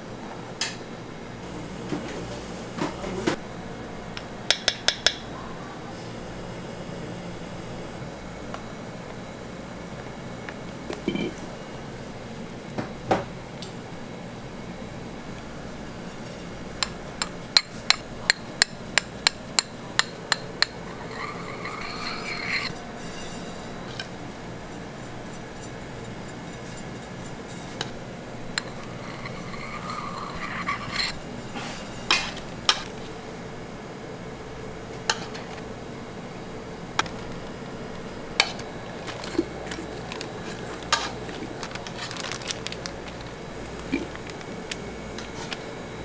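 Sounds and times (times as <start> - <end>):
sharp metal spatula taps: 4.5 - 5.2
spatula scraping cream: 20.7 - 23.3, 28.6 - 31.2.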